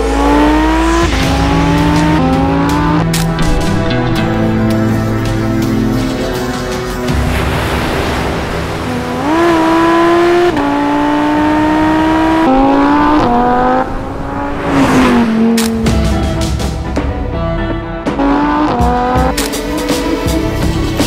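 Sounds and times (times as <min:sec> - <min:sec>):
sports car engine accelerating: 0:00.0 - 0:05.1, 0:08.9 - 0:16.7, 0:18.1 - 0:19.3
rush of air sweeping past: 0:13.9 - 0:16.1.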